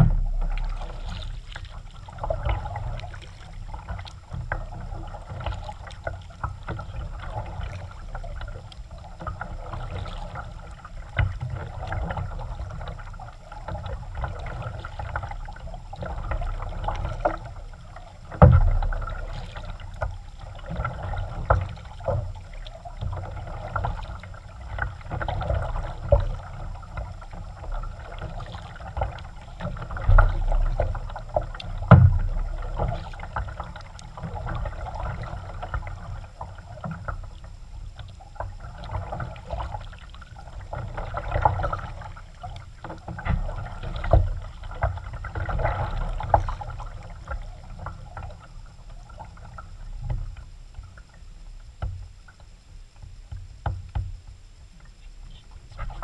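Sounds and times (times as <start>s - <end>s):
loud thump: 0.0s - 0.6s
paddle splashing in water: 0.0s - 51.1s, 54.8s - 56.0s
small knocks: 53.3s - 54.2s.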